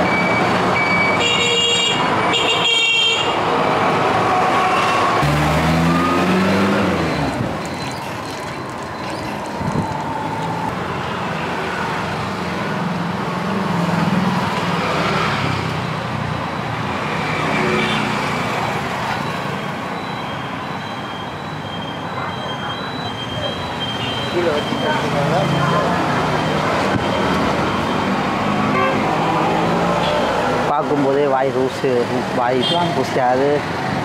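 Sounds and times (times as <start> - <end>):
vehicles passing: 0.0 - 34.0.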